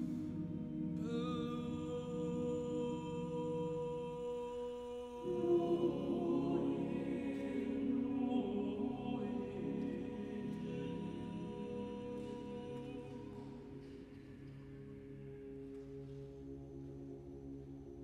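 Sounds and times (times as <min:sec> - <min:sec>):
choir singing: 0:00.0 - 0:15.2
alto soloist singing: 0:01.0 - 0:13.9.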